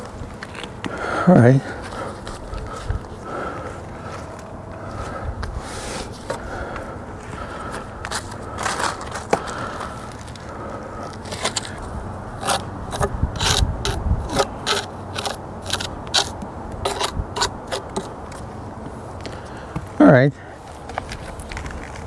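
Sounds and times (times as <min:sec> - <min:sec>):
scraping on stone and mortar: 0:11.0 - 0:18.5.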